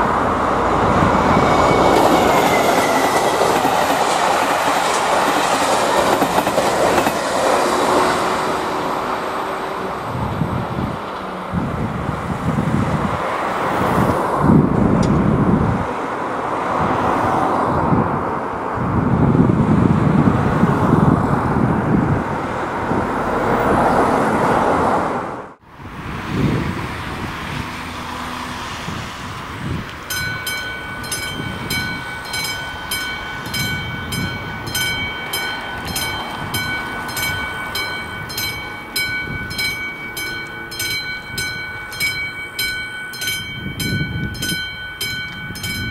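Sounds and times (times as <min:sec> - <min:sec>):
road noise: 0:00.0 - 0:45.9
wind noise: 0:00.0 - 0:45.9
level crossing bell ringing: 0:30.1 - 0:45.9.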